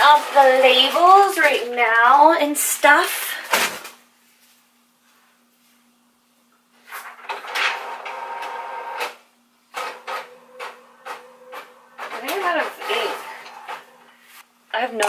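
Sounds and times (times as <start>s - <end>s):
printer running with whine: 7.1s - 14.3s.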